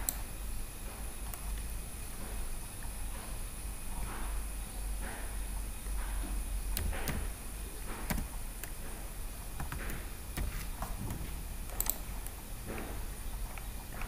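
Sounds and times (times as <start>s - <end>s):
computer keyboard keystrokes: 6.7s - 7.3s, 7.9s - 9.0s, 9.6s - 12.9s.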